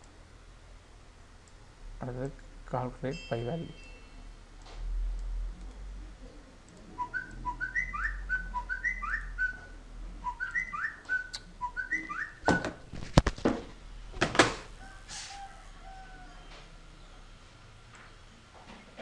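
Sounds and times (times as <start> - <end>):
whistled rising phrase: 6.9 - 12.6.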